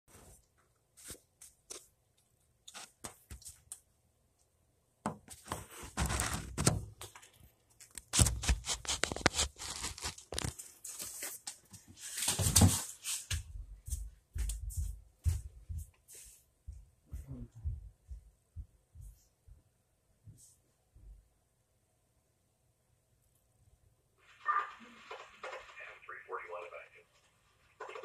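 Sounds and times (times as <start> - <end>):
rubbing and scraping: 5.3 - 6.8, 7.9 - 11.4.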